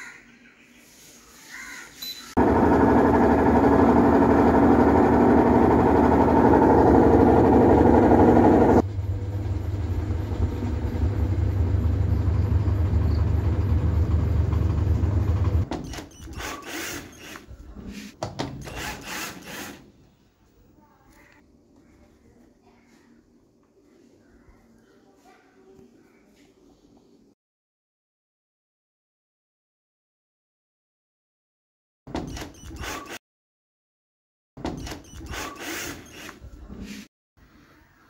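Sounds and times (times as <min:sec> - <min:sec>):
washing machine low hum: 0:02.4 - 0:15.7
washing machine running loudly: 0:02.4 - 0:15.7
cordless drill spurts: 0:16.0 - 0:17.5, 0:18.6 - 0:19.9, 0:32.3 - 0:33.2, 0:34.8 - 0:36.5.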